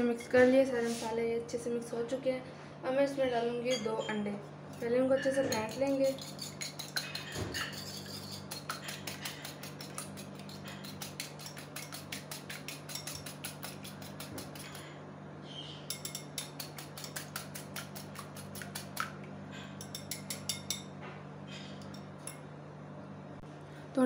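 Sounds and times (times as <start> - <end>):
steady low hum: 0.0 - 24.0
whisk clicking against bowl: 5.5 - 14.8, 15.9 - 19.2.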